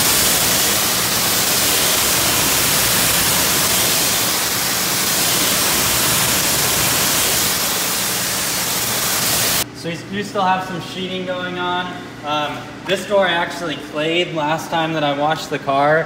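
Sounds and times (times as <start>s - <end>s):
pressure washer spraying water: 0.0s - 9.6s.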